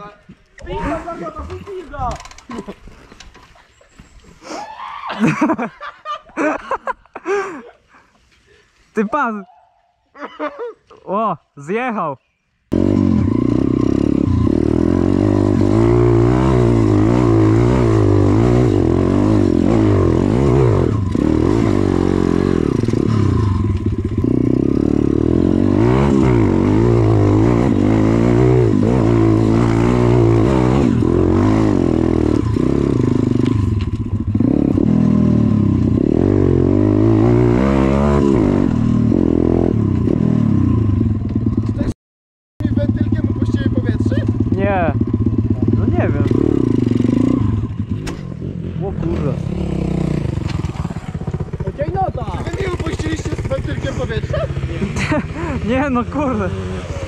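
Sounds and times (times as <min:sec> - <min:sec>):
dirt bike engine revving: 0:12.7 - 0:41.9, 0:42.6 - 0:57.0.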